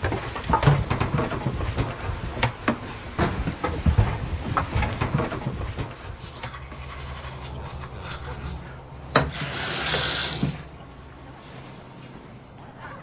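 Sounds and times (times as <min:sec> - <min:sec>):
steady low hum: 0:00.0 - 0:13.0
sink faucet running: 0:09.2 - 0:10.7.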